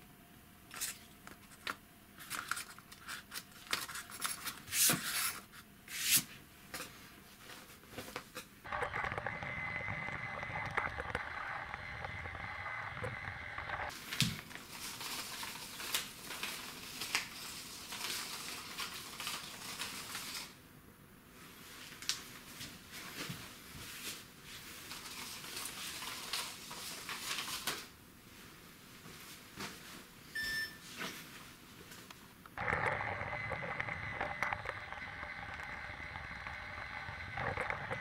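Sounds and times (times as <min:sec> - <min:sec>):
toy train motor whine: 0:08.7 - 0:13.9, 0:32.6 - 0:38.0.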